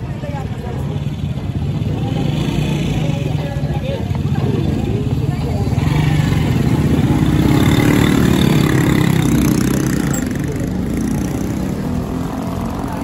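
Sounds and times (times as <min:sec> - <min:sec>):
motorcycle engine running: 0:00.6 - 0:13.0.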